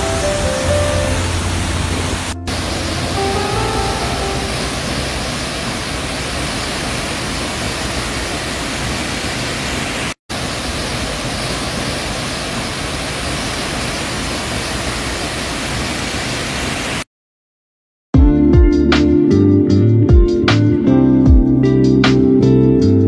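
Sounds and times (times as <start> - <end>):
waterfall rushing: 0.0 - 17.0.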